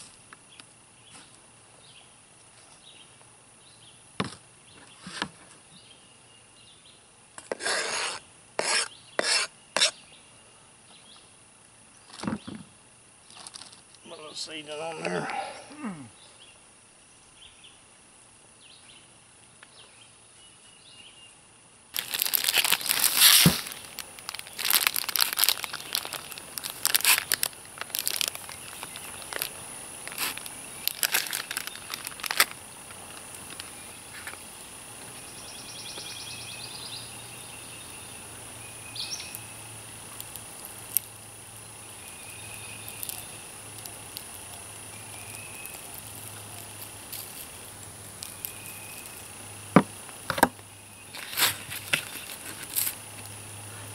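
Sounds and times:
faint birds chirping: 0:00.3 - 0:52.6
plastic bag crinkling: 0:22.0 - 0:34.3, 0:51.1 - 0:53.0.

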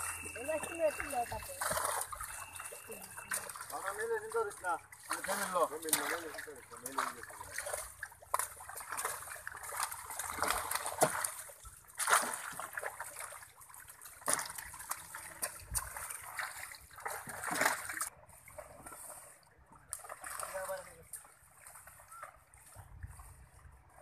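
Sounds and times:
fish splashing in net: 0:00.0 - 0:19.2
water washing: 0:00.0 - 0:23.3.

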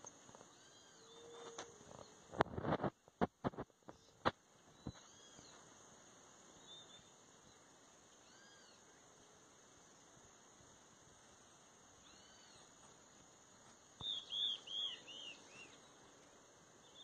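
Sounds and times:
high insect drone: 0:00.0 - 0:17.0
faint rising and falling cries: 0:00.3 - 0:02.3, 0:06.5 - 0:09.4, 0:11.8 - 0:13.2.

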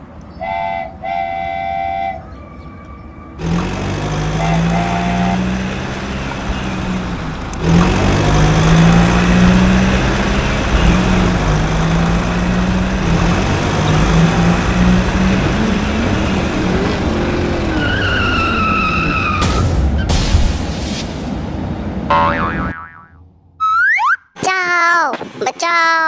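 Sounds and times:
loud gritty motor drone: 0:03.4 - 0:17.8.

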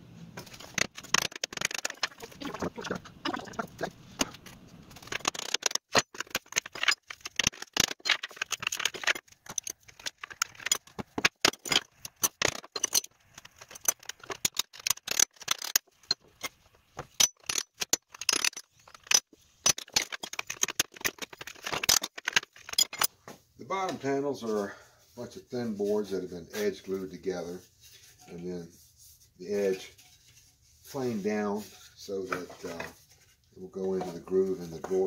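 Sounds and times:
small metallic rattles: 0:04.1 - 0:23.1
metal tools clicking on wood: 0:05.0 - 0:23.1.

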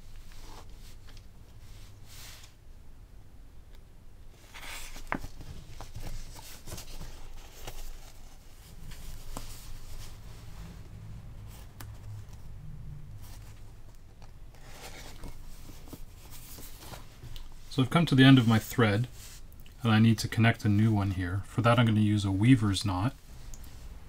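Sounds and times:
paper rustling and scraping: 0:04.4 - 0:17.6.

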